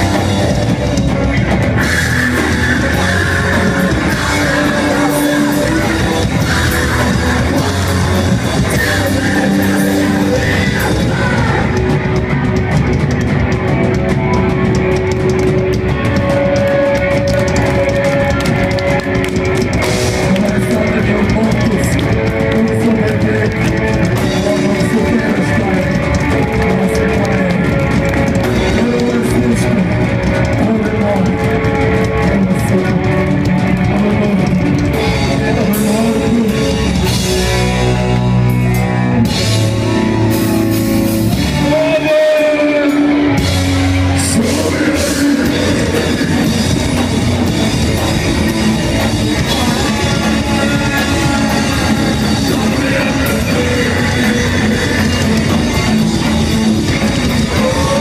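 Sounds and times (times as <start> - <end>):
drum kit: 0.0 - 58.0
electric guitar: 0.0 - 58.0
person singing: 0.0 - 58.0.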